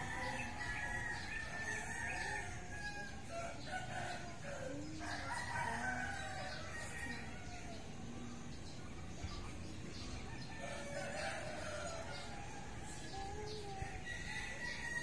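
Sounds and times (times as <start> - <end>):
rooster crowing: 0.0 - 7.8, 14.0 - 15.0.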